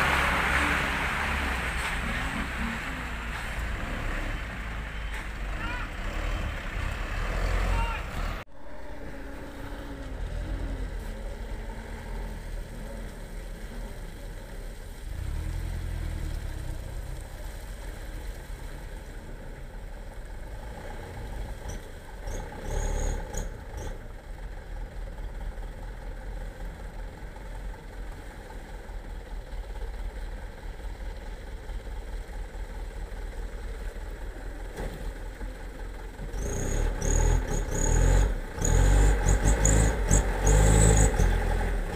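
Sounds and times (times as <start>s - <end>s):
truck diesel engine rumbling: 0.0s - 41.9s.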